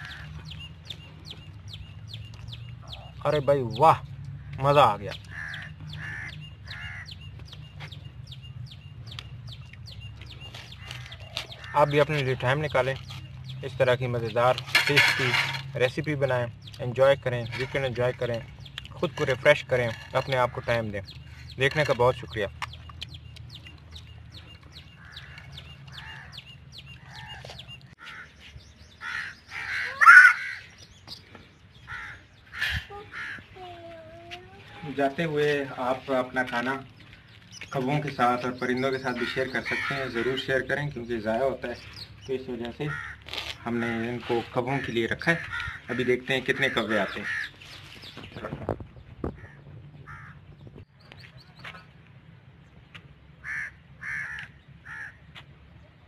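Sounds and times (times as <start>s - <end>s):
crows cawing: 0.0s - 0.5s, 4.3s - 7.4s, 10.7s - 12.2s, 24.9s - 30.9s, 31.8s - 33.7s, 39.0s - 40.8s, 42.7s - 47.7s, 49.3s - 50.5s, 53.4s - 55.4s
small bird chirping: 0.0s - 14.6s, 15.8s - 42.6s.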